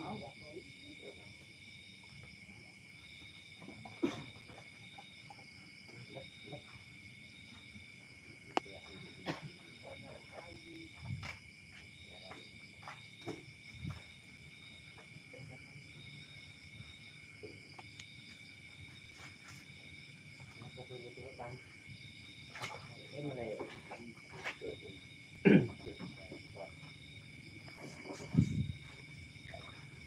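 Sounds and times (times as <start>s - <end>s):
insect trill: 0.0s - 30.0s
insects droning: 0.0s - 30.0s.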